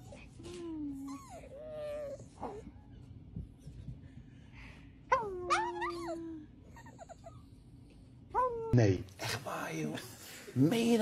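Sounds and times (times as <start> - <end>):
puppy whining howl: 0.0 - 3.1, 5.1 - 7.5.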